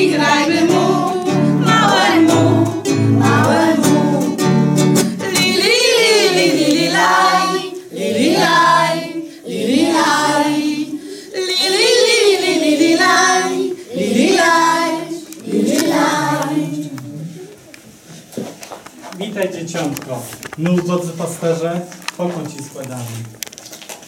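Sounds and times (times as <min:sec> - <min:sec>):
women and children singing: 0:00.0 - 0:17.6.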